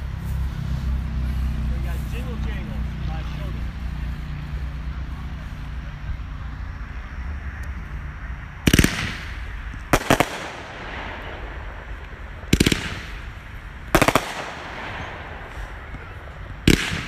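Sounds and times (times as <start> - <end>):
fireworks bursting with echo: 8.6 - 17.0.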